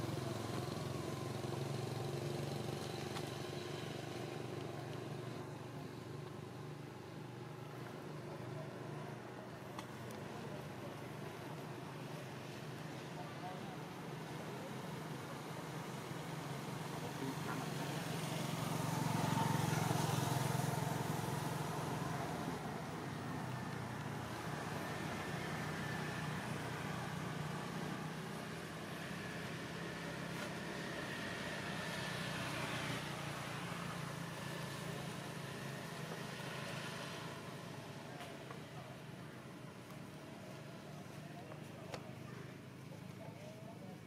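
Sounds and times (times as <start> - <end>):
traffic rumble: 0.0 - 44.0
vehicle passing: 16.2 - 38.4.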